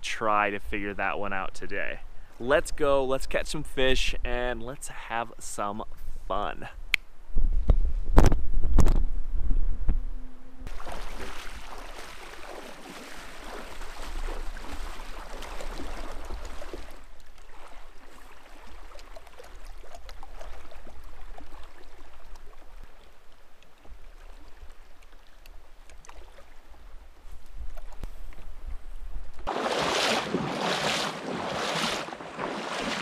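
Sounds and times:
wind rumble on microphone: 7.2 - 10.7
river water splashing: 10.7 - 27.2, 29.5 - 33.0.

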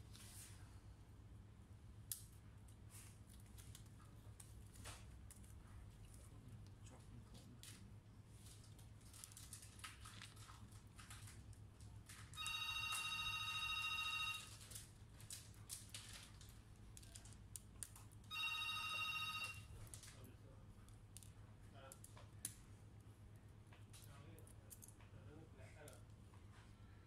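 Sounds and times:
electronic ringing tone: 12.4 - 14.5, 18.3 - 19.7.

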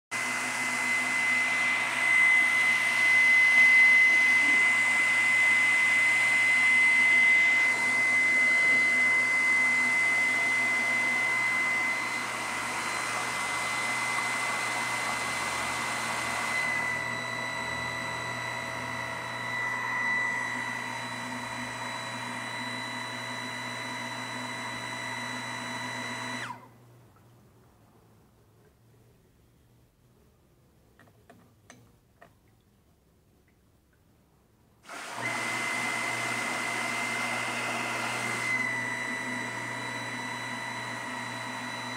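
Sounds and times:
water pump motor whine: 0.1 - 26.9, 34.8 - 41.9.

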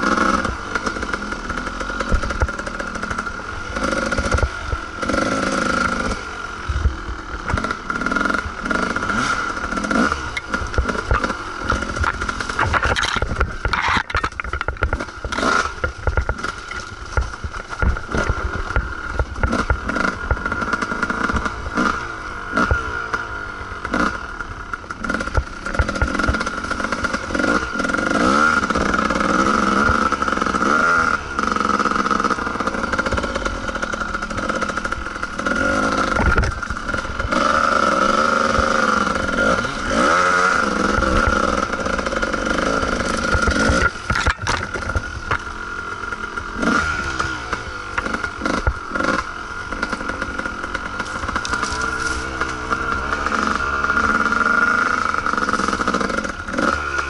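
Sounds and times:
bike rattling over bumps: 0.0 - 57.0
dirt bike engine revving: 0.0 - 57.0.

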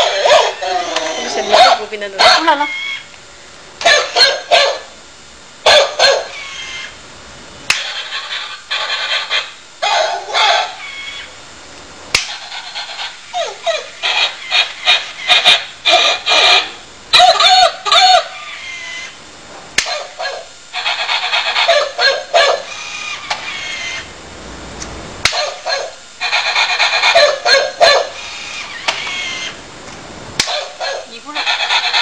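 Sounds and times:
toy dog synthetic barks: 0.0 - 3.0, 3.8 - 4.9, 5.6 - 6.9, 7.8 - 11.2, 12.5 - 19.1, 19.8 - 22.7, 25.2 - 28.2, 30.4 - 32.0
sharp snap: 7.7 - 7.9, 12.1 - 12.4, 19.8 - 20.0, 30.4 - 30.6.

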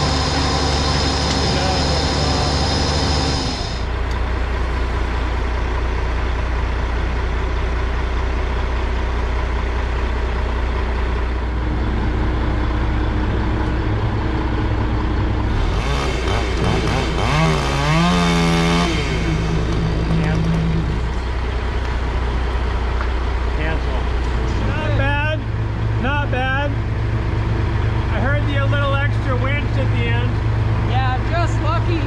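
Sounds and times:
chainsaw cutting wood: 0.0 - 3.9, 15.6 - 19.9
diesel engine running: 0.0 - 32.0.

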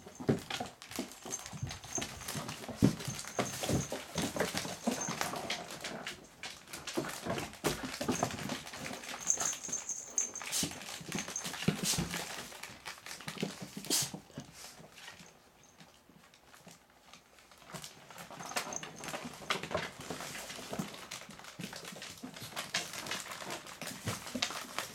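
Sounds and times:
puppy noises: 0.0 - 6.3, 7.2 - 12.1, 18.3 - 19.3.

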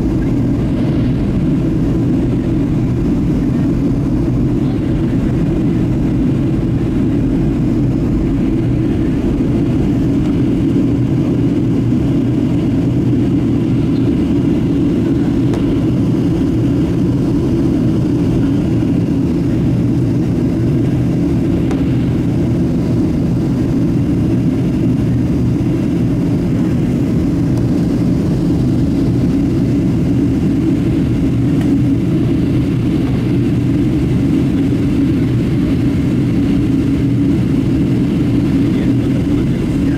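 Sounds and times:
airplane cabin roar: 0.0 - 39.9.

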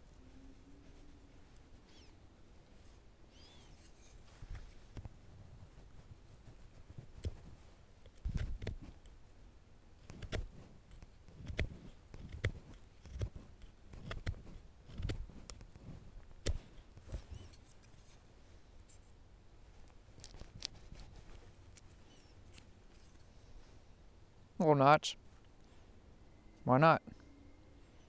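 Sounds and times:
faint scrapes and ticks: 0.3 - 9.2, 10.0 - 23.9
knife carving wooden stick: 3.5 - 4.8, 7.0 - 9.1, 10.0 - 18.2.

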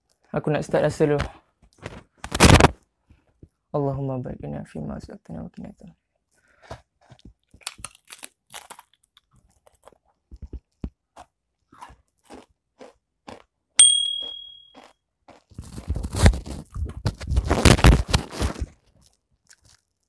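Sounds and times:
crisps crunching while chewed: 6.2 - 13.7, 14.7 - 20.0
bright ding: 13.8 - 14.8.

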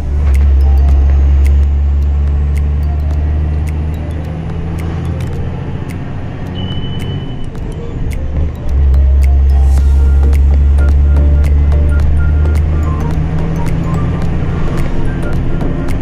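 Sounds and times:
faint ticks: 0.0 - 16.0
high steady tone: 0.0 - 16.0.

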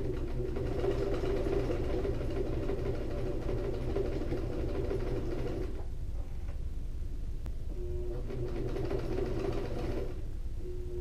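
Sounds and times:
sewing machine stitching: 0.0 - 5.8, 7.9 - 10.2.

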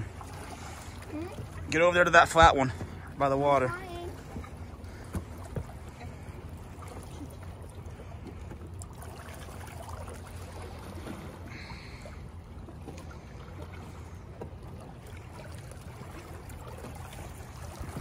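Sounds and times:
waves lapping against rocks: 0.0 - 18.0.

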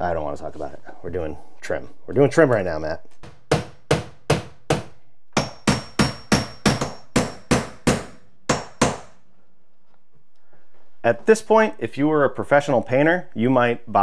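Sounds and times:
hammer tapping nails: 3.2 - 9.2.

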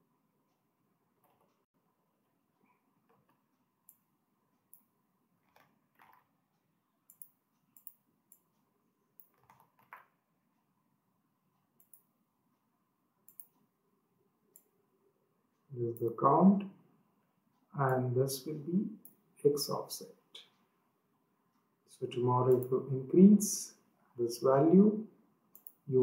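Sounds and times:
mouse clicks: 7.1 - 8.5, 11.8 - 12.1, 13.2 - 13.6, 25.5 - 25.8.

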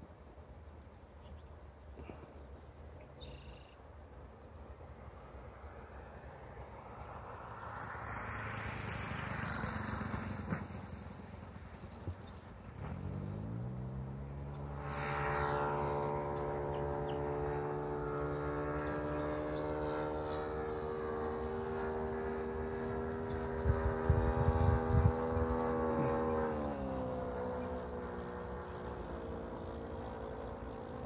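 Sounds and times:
model plane engine and propeller: 0.0 - 31.0
wind rumbling on microphone: 23.2 - 26.6.

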